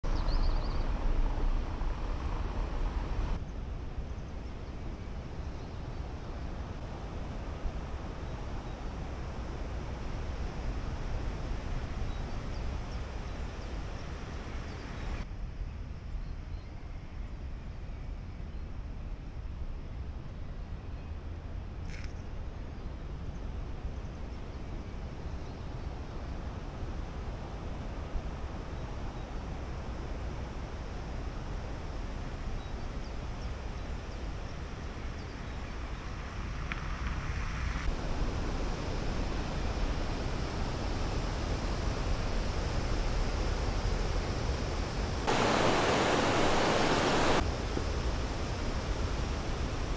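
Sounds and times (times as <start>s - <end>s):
low wind rumble on microphone: 0.0s - 49.9s
hiss: 36.9s - 49.9s.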